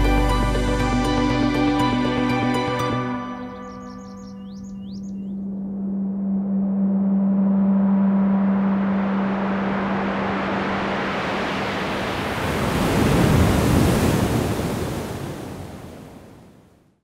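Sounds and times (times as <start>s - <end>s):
low drone: 0.0s - 12.2s
whoosh of noise: 5.3s - 14.6s.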